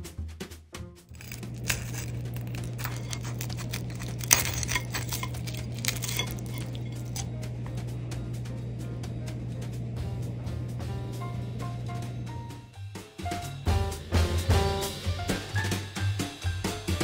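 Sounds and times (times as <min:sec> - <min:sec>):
cutlery clinking and scraping on plate: 0:01.2 - 0:07.3
steady low hum: 0:01.2 - 0:12.7.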